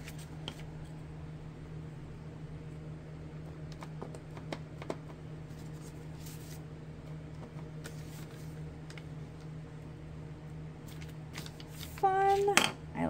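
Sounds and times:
steady low hum: 0.0s - 13.0s
soft paper rustles: 5.5s - 6.6s, 7.8s - 9.5s, 10.8s - 12.6s.

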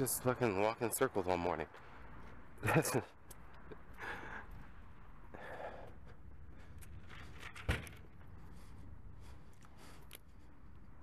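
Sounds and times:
man sighing breathily: 3.9s - 4.6s, 5.3s - 6.0s.

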